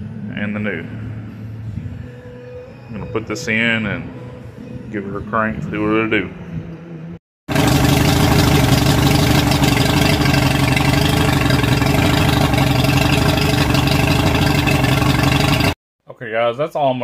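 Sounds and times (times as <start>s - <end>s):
outboard motor idling: 7.5s - 15.8s.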